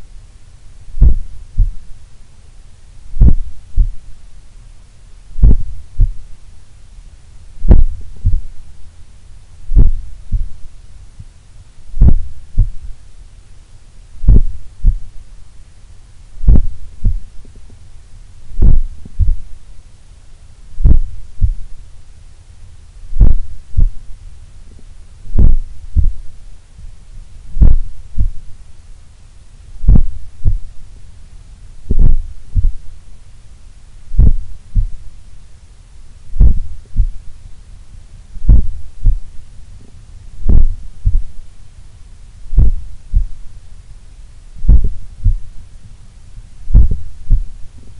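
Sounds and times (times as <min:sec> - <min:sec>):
heartbeat through stethoscope: 0:01.0 - 0:01.9, 0:03.1 - 0:04.1, 0:05.4 - 0:06.3, 0:07.6 - 0:08.6, 0:09.7 - 0:10.6, 0:11.9 - 0:13.0, 0:14.2 - 0:15.2, 0:16.4 - 0:17.4, 0:18.5 - 0:19.6, 0:20.8 - 0:21.7, 0:23.1 - 0:24.0, 0:25.3 - 0:26.3, 0:27.5 - 0:28.5, 0:29.8 - 0:30.7, 0:31.9 - 0:33.0, 0:34.1 - 0:35.1, 0:36.3 - 0:37.2, 0:38.4 - 0:39.3, 0:40.4 - 0:41.4, 0:42.5 - 0:43.4, 0:44.6 - 0:45.5, 0:46.7 - 0:47.6.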